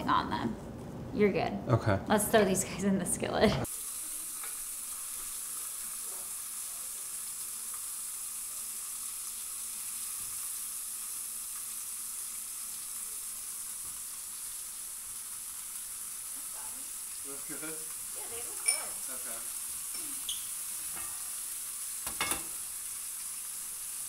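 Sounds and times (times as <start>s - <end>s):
meat sizzling in skillet: 3.6s - 24.0s.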